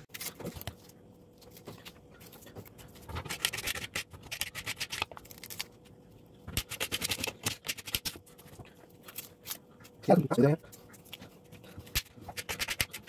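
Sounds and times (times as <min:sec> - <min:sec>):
onion skin crackling as peeled: 0:00.0 - 0:08.4
faint steady hum: 0:00.0 - 0:13.0.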